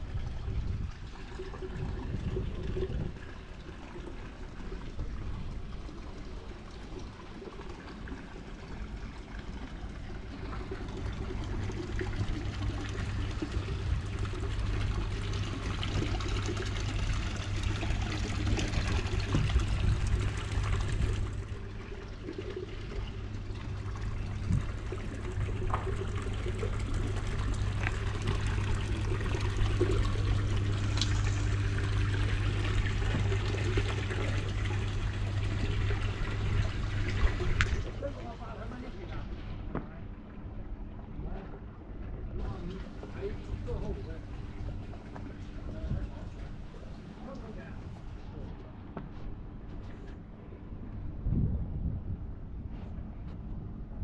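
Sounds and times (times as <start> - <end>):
water pouring and trickling: 0.0 - 39.2
steady low hum: 0.0 - 54.0.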